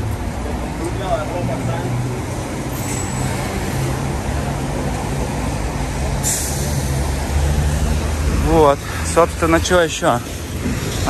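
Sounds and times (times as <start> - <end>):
car engines running: 0.0 - 11.0
tyres passing on wet road: 0.0 - 11.0
sharp hiss: 6.2 - 7.2.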